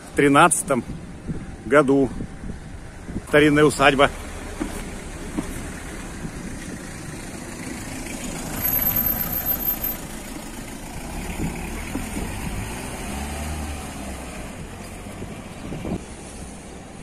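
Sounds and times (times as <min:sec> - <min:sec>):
low street rumble: 0:00.0 - 0:17.0
van driving past: 0:04.0 - 0:17.0.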